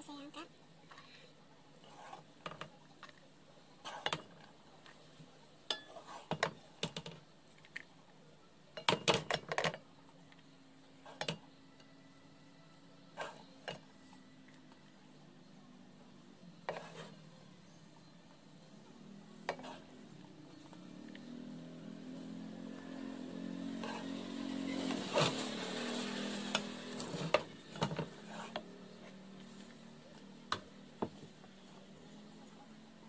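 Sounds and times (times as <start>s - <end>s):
spoon scraping and knocking on pot: 16.7s - 17.1s, 19.5s - 19.9s.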